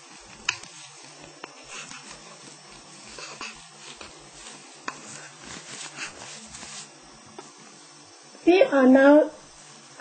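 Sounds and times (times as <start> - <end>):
soft rustling of yarn: 0.0 - 8.0, 9.4 - 10.0.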